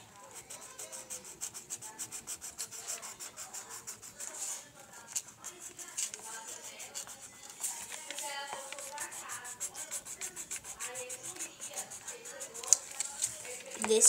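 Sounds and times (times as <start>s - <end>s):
pencil scribbling on paper: 0.0s - 14.0s.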